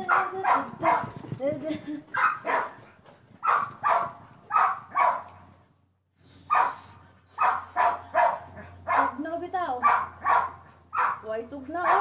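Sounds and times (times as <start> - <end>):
dog barking: 0.0 - 1.1, 2.2 - 2.8, 3.4 - 5.4, 6.5 - 6.8, 7.4 - 9.2, 9.8 - 12.0.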